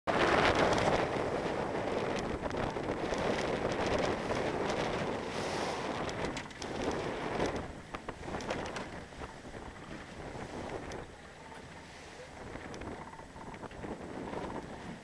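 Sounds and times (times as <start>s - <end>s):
sea water rushing around boat: 0.1s - 15.0s
wind buffeting microphone: 0.1s - 15.0s
small ticks and slaps: 6.0s - 9.3s.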